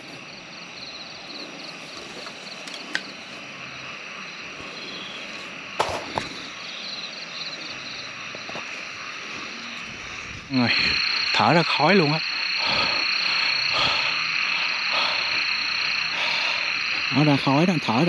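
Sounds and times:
frogs and insects calling: 0:00.0 - 0:18.0.

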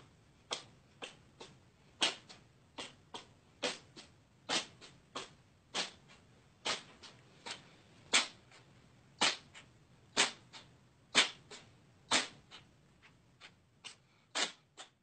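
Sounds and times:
cat snorting: 0:00.0 - 0:15.0
cat sneezing: 0:02.0 - 0:08.6, 0:09.2 - 0:12.4, 0:13.4 - 0:15.0.

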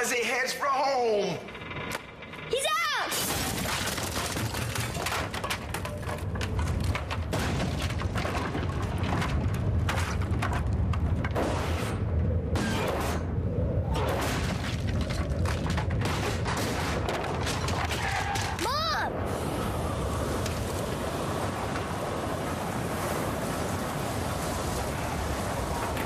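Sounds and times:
cracks and bangs of debris: 0:01.6 - 0:26.0
storm wind rumbling: 0:05.3 - 0:26.0.

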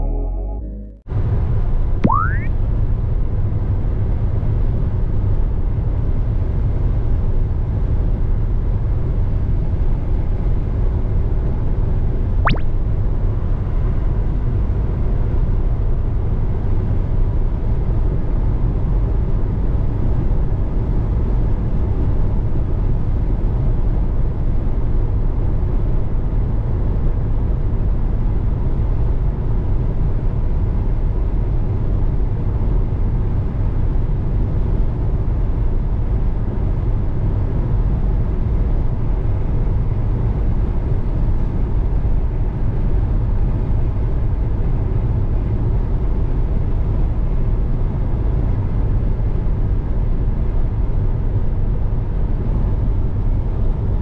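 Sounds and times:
short rising tone: 0:00.0 - 0:01.1, 0:02.0 - 0:02.5, 0:12.5 - 0:12.8
brief sharp sweep: 0:02.0 - 0:02.5, 0:12.5 - 0:12.8.

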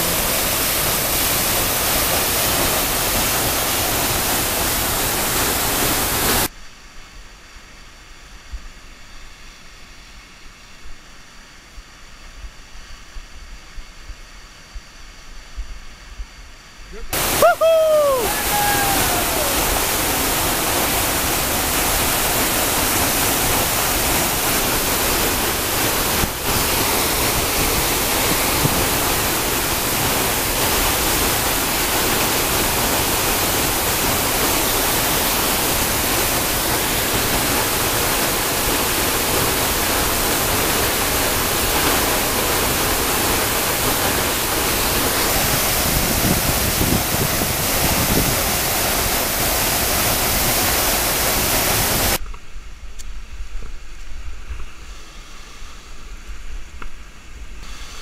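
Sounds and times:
waterfall rushing: 0:00.0 - 0:06.5, 0:17.1 - 0:52.2.

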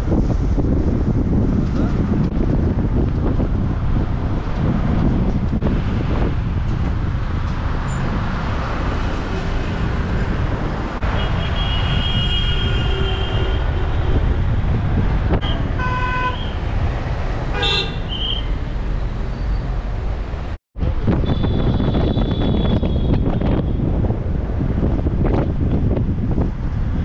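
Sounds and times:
traffic rumble: 0:00.0 - 0:27.0
vehicle horns honking: 0:11.0 - 0:14.2, 0:15.4 - 0:16.6, 0:17.5 - 0:18.5, 0:21.2 - 0:23.6.

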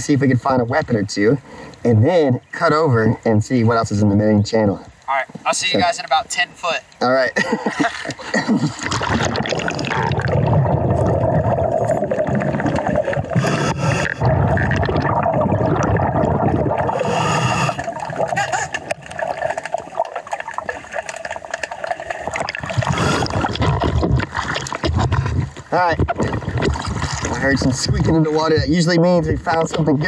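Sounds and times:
muffled water rush: 0:00.0 - 0:30.0
bubbles gurgling from regulator: 0:08.2 - 0:28.7.

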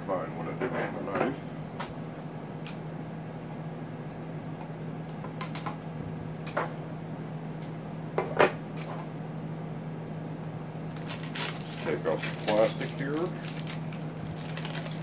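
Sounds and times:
steady low hum: 0:00.0 - 0:15.0
plastic wrap being cut: 0:10.9 - 0:15.0.

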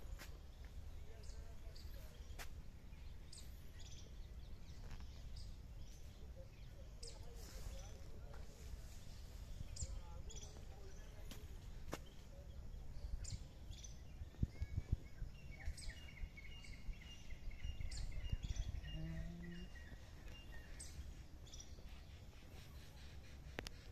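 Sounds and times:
small birds chirping: 0:00.0 - 0:23.9.

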